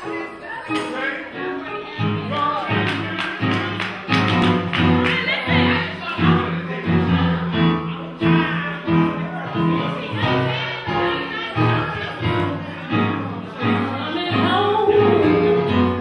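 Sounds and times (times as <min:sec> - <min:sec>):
choir singing: 0:08.6 - 0:16.0.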